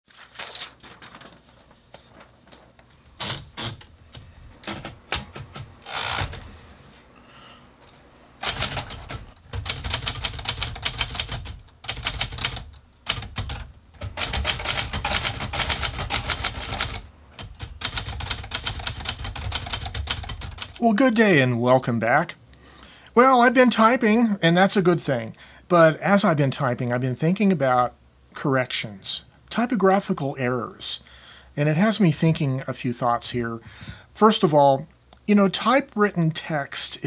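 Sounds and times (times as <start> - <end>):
typewriter typing: 4.6 - 6.4, 8.4 - 20.8.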